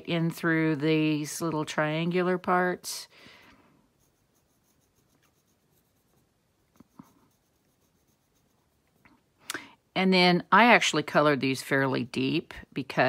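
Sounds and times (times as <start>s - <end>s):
pencil scratching on paper: 3.9s - 9.0s.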